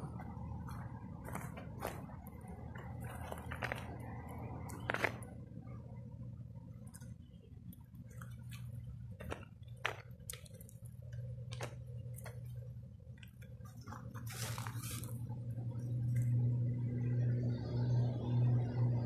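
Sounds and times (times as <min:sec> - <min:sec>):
steady low hum: 0:00.0 - 0:19.0
footsteps crunching on leaves: 0:00.1 - 0:04.2, 0:14.2 - 0:15.2.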